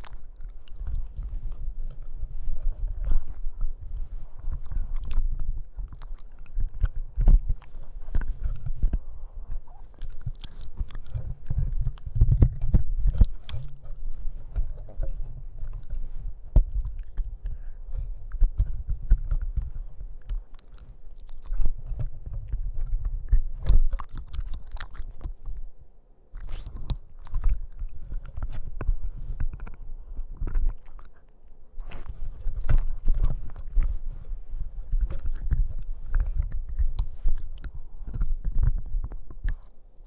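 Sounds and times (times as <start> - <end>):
dull low rumble: 0.0 - 25.8, 26.4 - 39.7
puppy chewing on plastic: 0.0 - 40.0.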